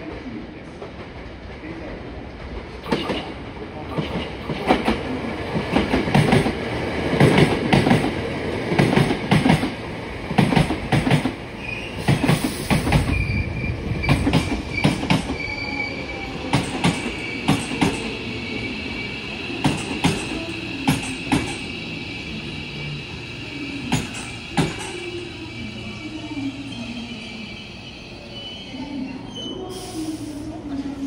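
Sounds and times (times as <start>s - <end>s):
train wheels clacking: 8.7s - 11.4s, 14.0s - 15.4s, 16.4s - 18.2s, 19.6s - 21.7s, 23.9s - 25.1s.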